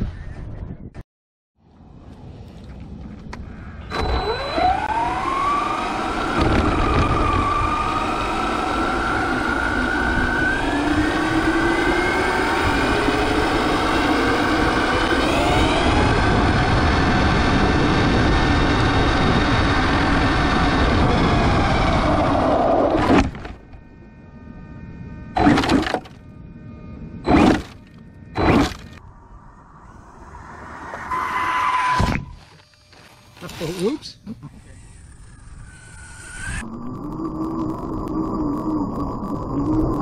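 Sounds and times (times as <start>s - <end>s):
electric motor whine: 3.9s - 33.9s, 34.5s - 40.0s.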